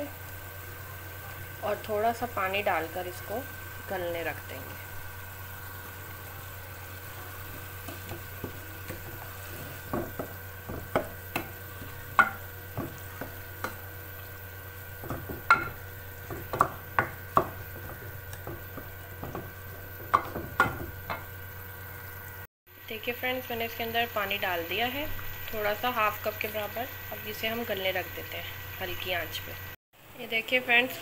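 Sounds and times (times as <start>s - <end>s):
steady low hum: 0.0s - 29.8s.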